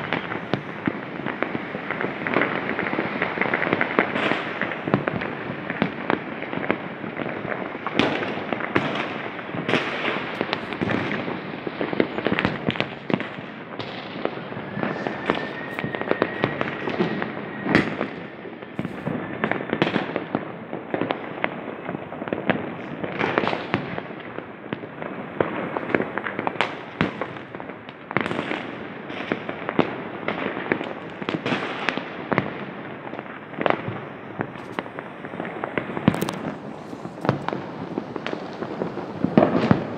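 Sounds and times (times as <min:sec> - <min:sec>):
thin firework whistle: 0:00.0 - 0:06.0, 0:09.8 - 0:20.4
fireworks bangs and crackles: 0:00.0 - 0:39.9.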